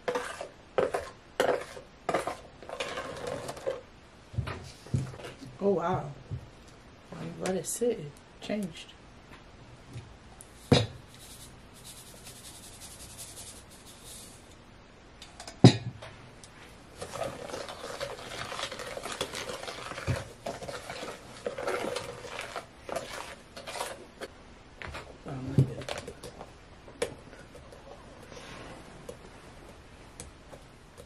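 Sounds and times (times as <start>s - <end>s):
plastic spoon scraping slime in tub: 0.0s - 3.8s, 17.0s - 24.3s.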